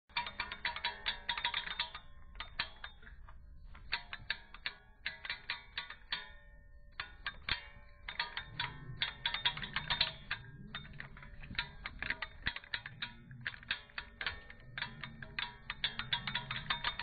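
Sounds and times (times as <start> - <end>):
plucked string music: 0.1 - 17.0
low bass line: 7.0 - 17.0.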